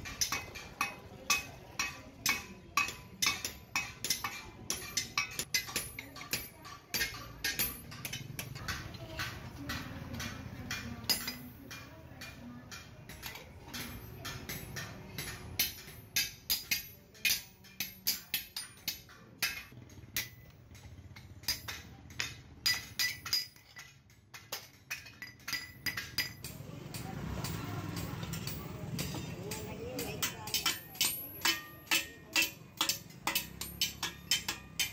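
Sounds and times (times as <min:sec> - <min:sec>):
hammer striking metal on anvil: 0:00.0 - 0:34.9.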